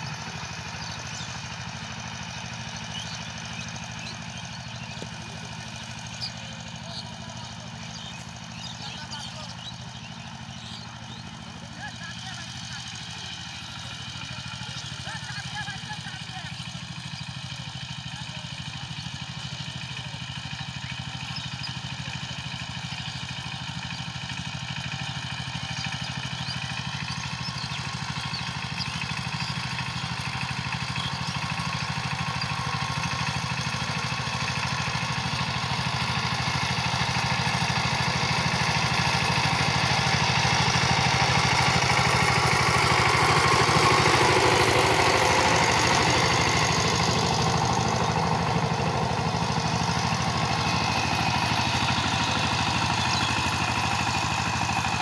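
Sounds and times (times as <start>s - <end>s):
diesel tiller engine running: 0.0s - 55.0s.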